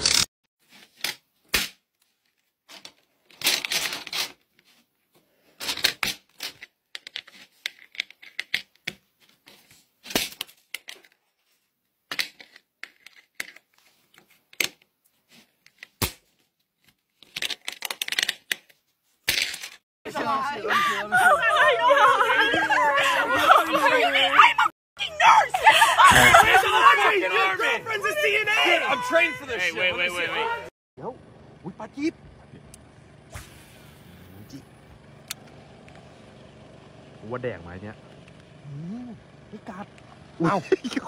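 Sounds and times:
plastic bricks clicking and scraping: 5.6s - 9.0s, 17.2s - 19.8s.

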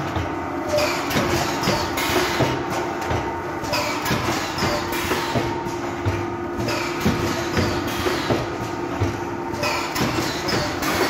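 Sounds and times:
bagging machine clattering and hissing: 0.0s - 11.0s
machine hum: 0.0s - 11.0s.

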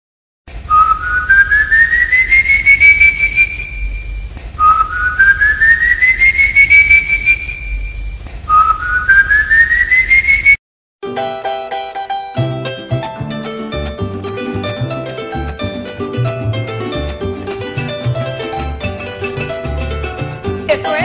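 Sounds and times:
long eerie rising whistle: 0.7s - 10.6s.

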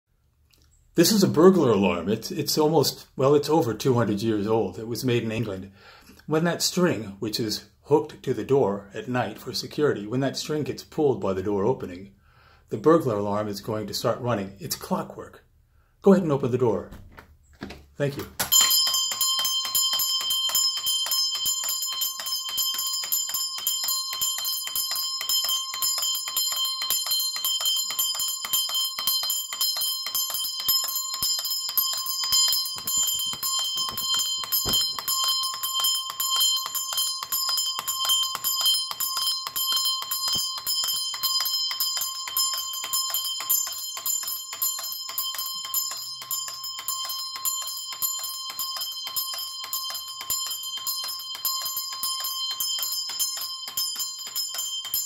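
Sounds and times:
alarm bell ringing continuously: 18.4s - 55.0s.

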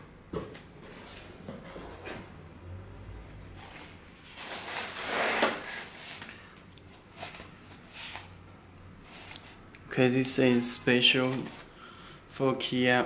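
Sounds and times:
packaging rustling: 4.2s - 6.4s.

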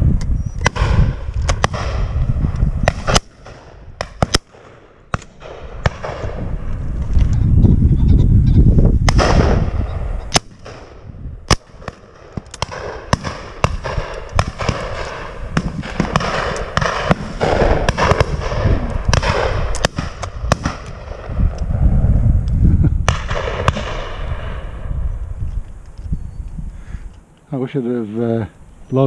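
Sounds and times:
wind rumble on microphone: 0.0s - 4.4s, 5.1s - 27.2s
distant shotgun shots: 0.6s - 6.4s, 9.1s - 21.4s, 23.1s - 24.8s
shotgun shots: 0.6s - 6.4s, 9.1s - 21.4s, 23.0s - 24.8s.

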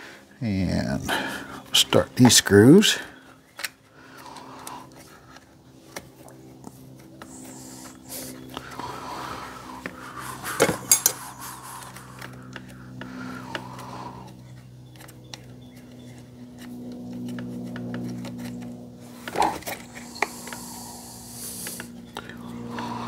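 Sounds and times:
steady low hum: 0.0s - 23.0s
metal parts and tools clinking: 10.6s - 11.2s.

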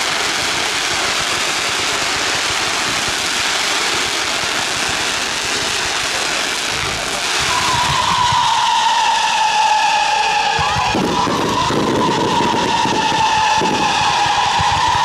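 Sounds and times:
fireworks hissing and crackling: 0.0s - 15.0s
whistling firework: 0.0s - 15.0s.

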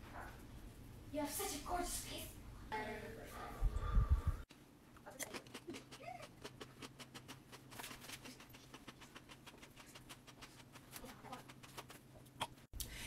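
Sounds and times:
person chewing: 5.1s - 12.7s.

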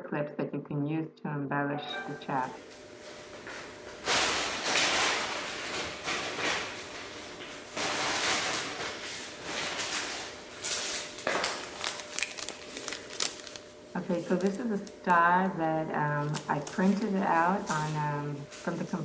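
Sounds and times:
rustling and handling noises: 3.0s - 15.2s, 16.1s - 19.0s.

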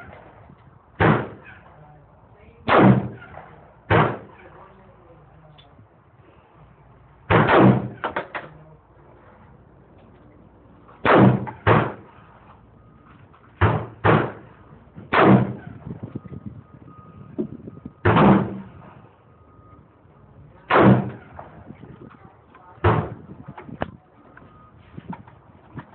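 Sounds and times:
faint gunshots: 1.0s - 1.8s, 2.6s - 4.7s, 7.3s - 8.5s, 11.0s - 12.2s, 13.6s - 15.8s, 18.0s - 18.7s, 20.7s - 21.7s
gunshots with echo: 1.0s - 1.8s, 2.7s - 4.6s, 7.3s - 8.5s, 11.0s - 12.2s, 13.6s - 15.8s, 18.0s - 18.9s, 20.7s - 21.7s.

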